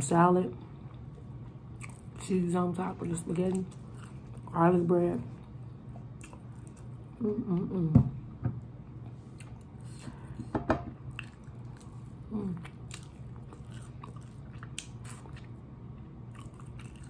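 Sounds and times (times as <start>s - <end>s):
person chewing and smacking: 0.9s - 2.2s, 3.5s - 4.6s, 5.4s - 7.2s, 9.0s - 10.2s, 11.0s - 17.0s.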